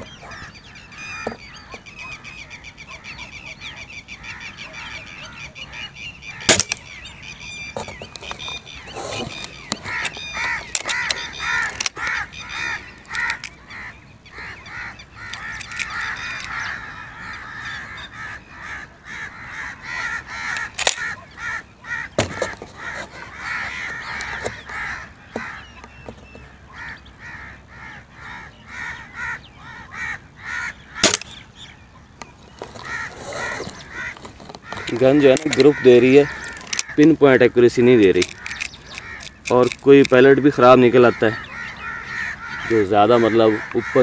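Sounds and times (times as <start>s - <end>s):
birds calling: 0.0s - 44.0s
air rifle cocking clicks: 15.3s - 16.5s, 38.2s - 40.2s.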